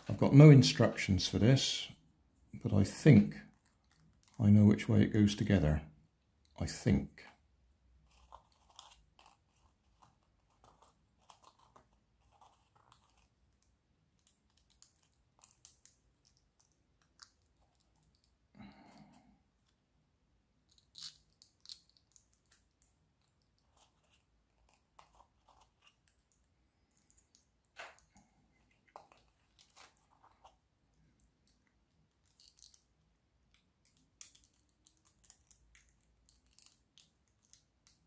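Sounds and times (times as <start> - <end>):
light rustling over paper: 8.0 - 19.9, 22.2 - 32.9
plastic puzzle pieces clicking: 12.8 - 18.3, 32.2 - 38.0.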